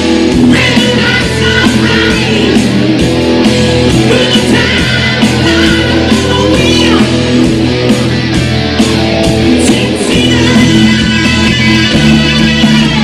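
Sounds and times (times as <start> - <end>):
bass guitar: 0.0 - 13.0
drums: 0.0 - 13.0
electric guitar: 0.0 - 13.0
man singing: 0.5 - 2.7, 3.9 - 7.2, 9.6 - 13.0.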